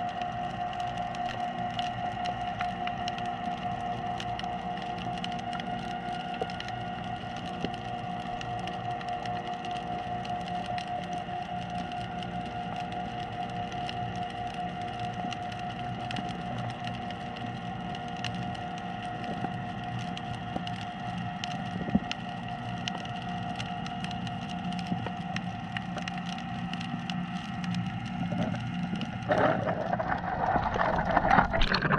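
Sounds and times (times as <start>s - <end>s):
crackle of sharp clicks: 0.0s - 31.9s
steady underwater hum: 0.0s - 31.9s
water rushing and sloshing: 28.4s - 31.9s.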